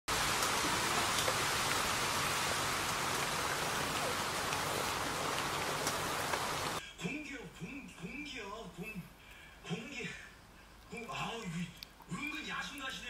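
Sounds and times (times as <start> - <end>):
rain falling on leaves: 0.1 - 6.8.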